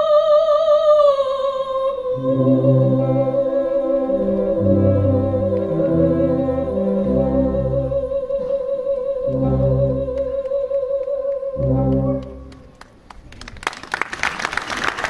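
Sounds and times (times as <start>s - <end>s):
soprano singing with vibrato: 0.0s - 12.6s
wind band chords: 2.2s - 12.8s
scattered clapping: 10.2s - 15.0s.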